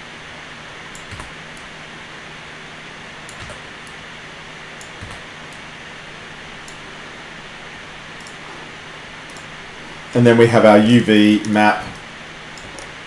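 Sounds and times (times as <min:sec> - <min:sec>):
low hum: 0:00.0 - 0:13.0
recording hiss: 0:00.0 - 0:13.0
faint computer mouse clicks: 0:08.2 - 0:08.4.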